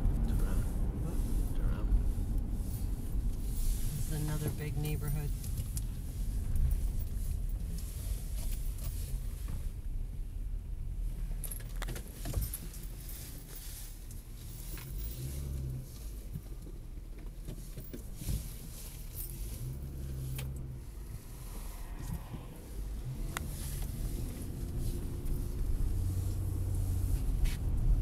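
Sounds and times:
car engine and road rumble: 0.0s - 28.0s
light clicks and rattles: 11.4s - 15.2s.

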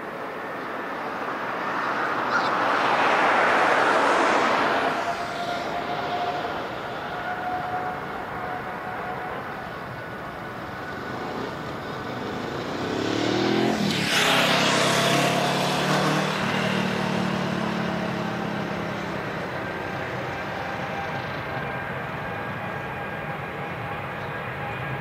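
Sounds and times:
road vehicle passing: 0.0s - 22.9s
distant jet engines whining: 0.0s - 25.0s.

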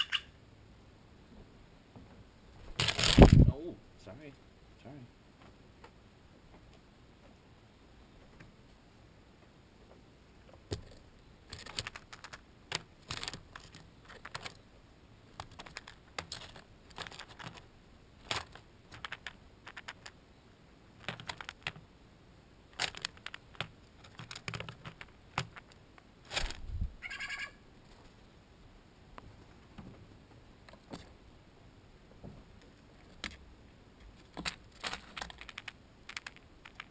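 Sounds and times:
beak clicking on shells and tray: 10.7s - 14.6s, 15.4s - 20.2s, 21.0s - 21.8s, 22.7s - 26.1s, 34.3s - 36.9s.

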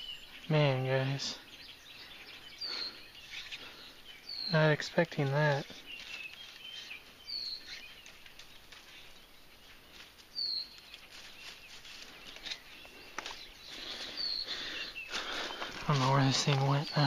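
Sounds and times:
bird chirping: 0.0s - 17.0s
rustling: 5.2s - 17.0s.

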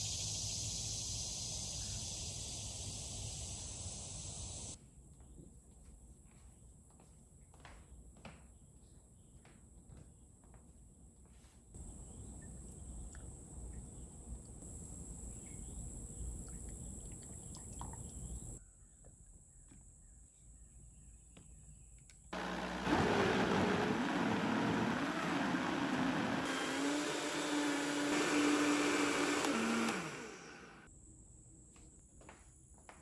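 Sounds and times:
crickets chirping: 0.0s - 4.8s, 11.8s - 18.6s
electric blender running: 22.4s - 30.9s.

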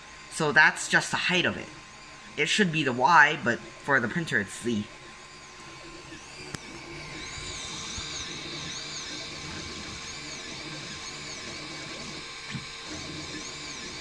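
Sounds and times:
steady printer hum: 0.0s - 14.0s
stepper motors whining: 0.0s - 14.0s.

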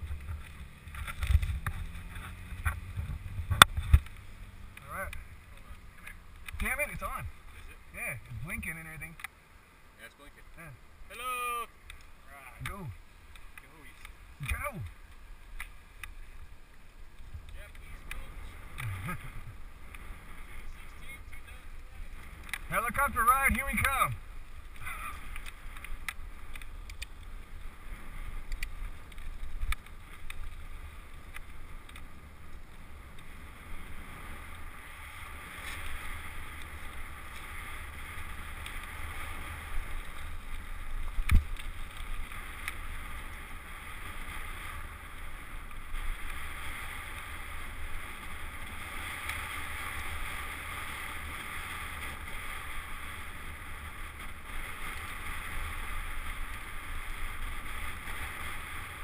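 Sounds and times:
wind on microphone: 0.0s - 7.4s
bicycle rolling rumble: 0.0s - 59.0s.

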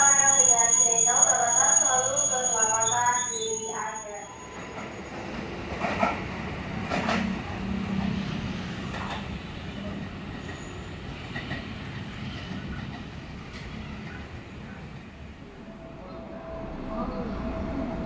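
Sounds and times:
electric train humming: 15.3s - 18.0s.

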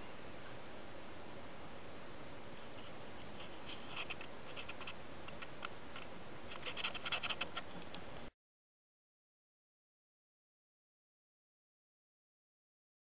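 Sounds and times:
old film soundtrack hiss and crackle: 0.0s - 8.3s.

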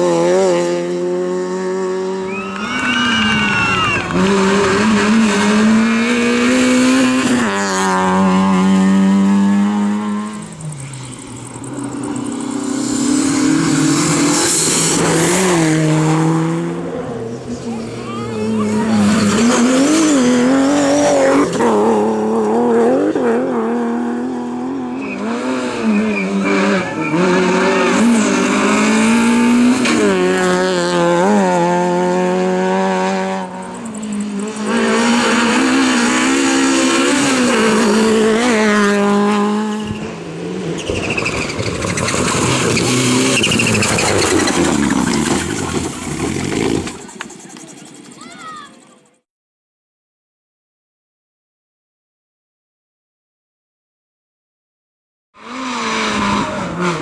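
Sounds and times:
rally car engines revving: 0.0s - 49.1s, 55.4s - 57.0s
tyre squeal: 25.0s - 28.0s, 40.8s - 49.1s
car rushing through dry grass: 40.8s - 48.8s.

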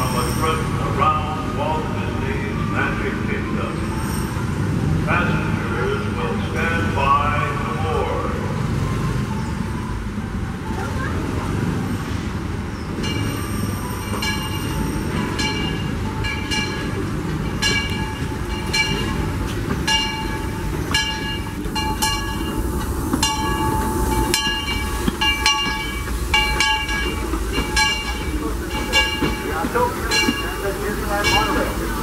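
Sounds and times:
steam train rumbling: 0.0s - 32.0s
locomotive bell ringing: 13.0s - 32.0s.

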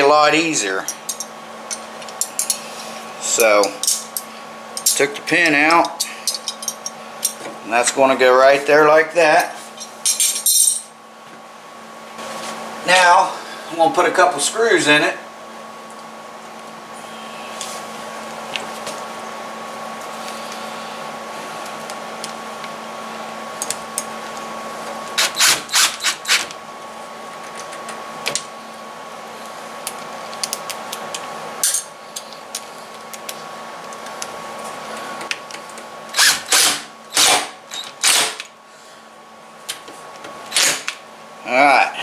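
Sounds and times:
power drill motor whine: 25.2s - 26.5s, 36.1s - 38.4s.

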